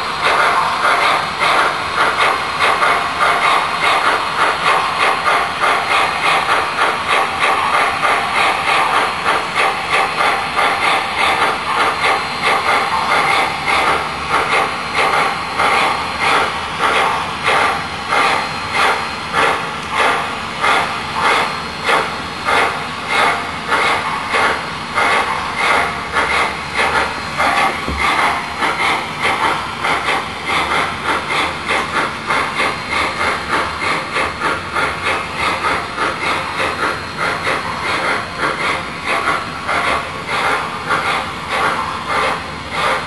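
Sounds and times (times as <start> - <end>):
model steam locomotive chuffing: 0.0 - 43.0.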